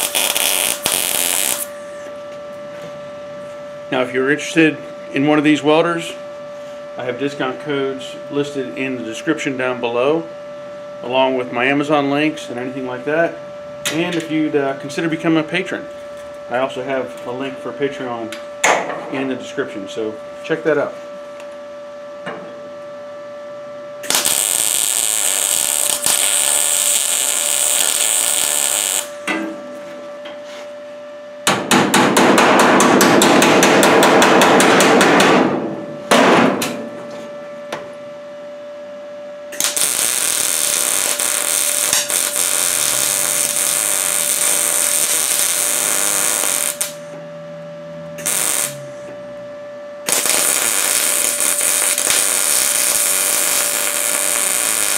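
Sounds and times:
welder running on sheet steel: 0:00.0 - 0:02.2, 0:24.0 - 0:29.3, 0:39.5 - 0:47.2, 0:48.2 - 0:49.1, 0:50.0 - 0:54.9.

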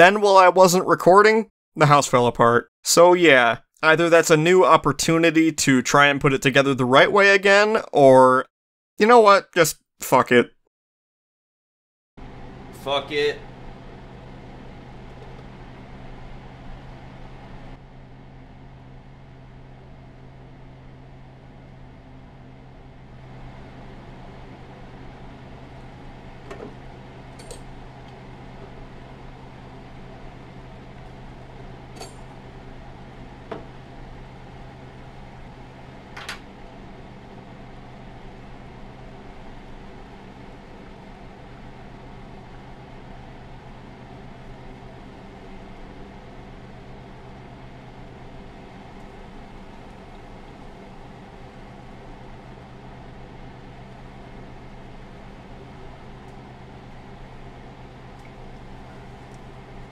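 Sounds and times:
low hum: 0:12.2 - 0:59.9.

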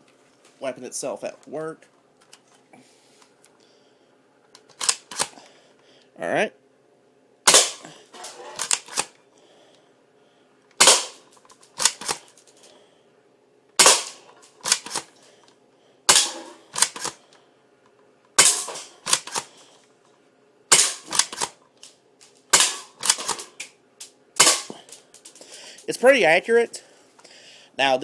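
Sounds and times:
airsoft pistol shots snapping: 0:07.5 - 0:07.8, 0:10.8 - 0:11.2, 0:13.8 - 0:15.0, 0:16.1 - 0:17.2, 0:18.4 - 0:19.5, 0:20.7 - 0:21.6, 0:22.5 - 0:23.5, 0:24.4 - 0:24.8.

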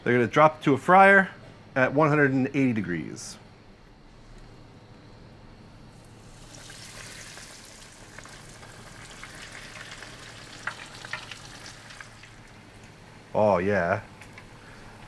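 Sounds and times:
food sizzling in deep fryer oil: 0:05.9 - 0:13.1.

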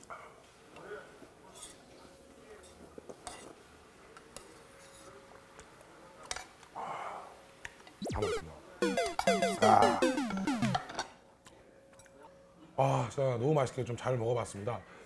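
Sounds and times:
playful music with sliding notes: 0:08.0 - 0:10.8.

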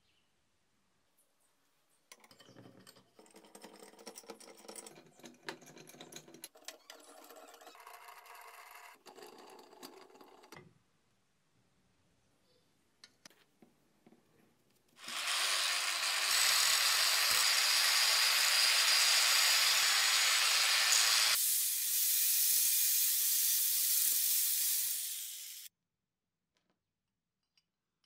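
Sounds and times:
power tool working on metal: 0:15.0 - 0:25.7.

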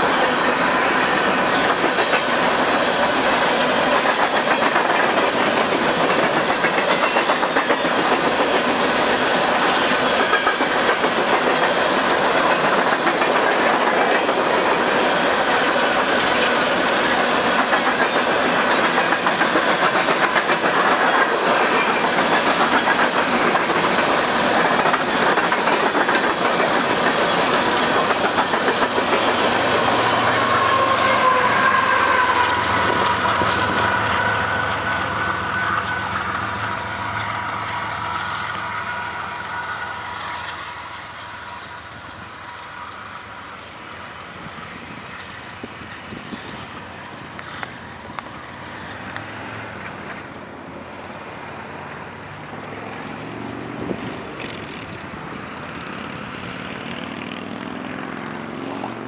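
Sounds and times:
diesel locomotive engine drone: 0:00.0 - 0:59.0
train wheels clickety-clack: 0:00.0 - 0:59.0
wavering high tone: 0:29.8 - 0:42.0.

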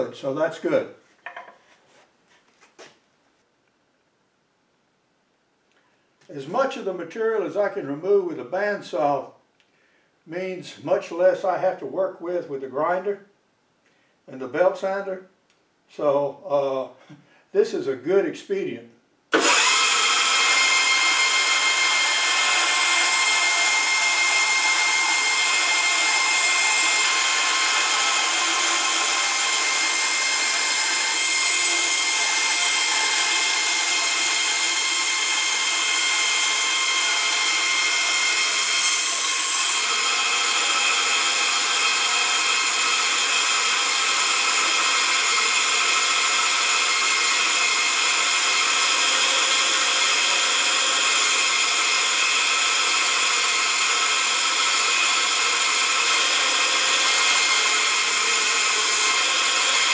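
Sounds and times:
bandsaw cutting wood: 0:19.3 - 0:59.9.

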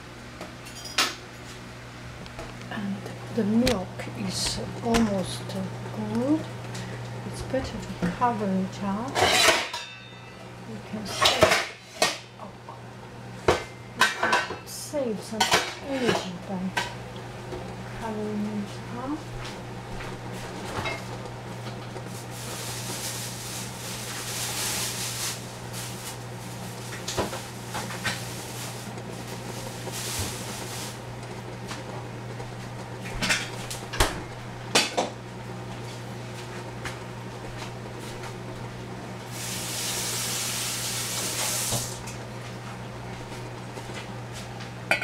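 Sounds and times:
steady low hum: 0:00.0 - 0:39.4
milk hissing in saucepan: 0:22.1 - 0:31.0, 0:39.2 - 0:42.0.

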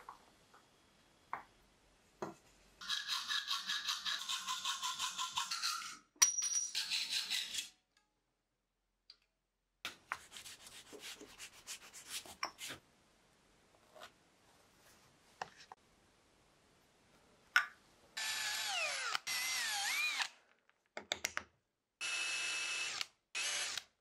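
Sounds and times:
hacksaw cutting sheet metal: 0:02.8 - 0:06.0, 0:06.7 - 0:07.8.

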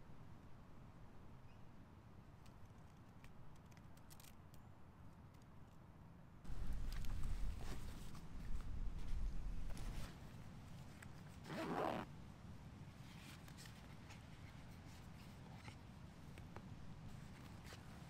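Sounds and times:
leather rubbing: 0:11.5 - 0:12.0.

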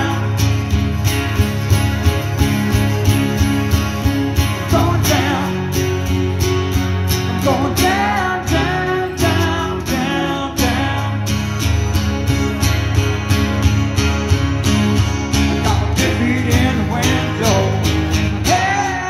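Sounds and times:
man singing: 0:00.0 - 0:00.8, 0:04.3 - 0:06.2, 0:07.2 - 0:11.5, 0:15.6 - 0:19.0
acoustic guitar strumming: 0:00.0 - 0:19.0.

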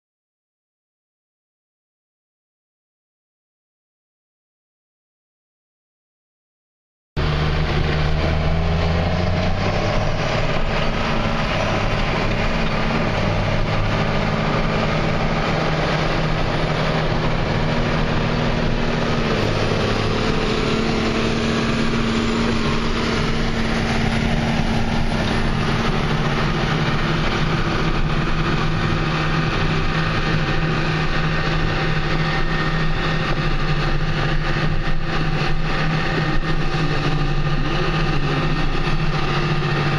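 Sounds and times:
tractor diesel engines running: 0:07.2 - 0:39.9.

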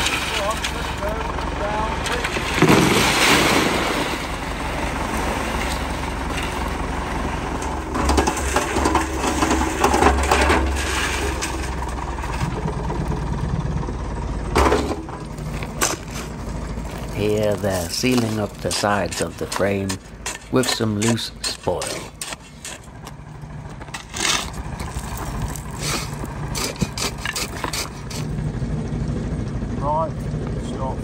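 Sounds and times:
wet concrete pouring: 0:00.0 - 0:06.8, 0:24.2 - 0:28.3
tractor engine running: 0:00.0 - 0:31.0.

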